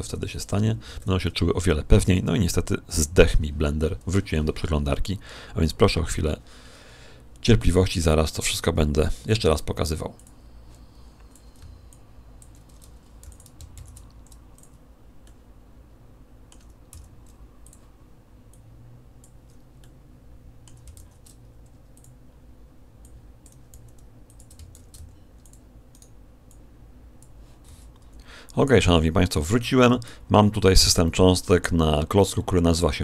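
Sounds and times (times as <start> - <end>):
steady low hum: 0.0 - 33.0
keyboard and mouse clicking: 11.2 - 15.4, 16.5 - 17.9, 20.6 - 22.2, 23.0 - 27.4.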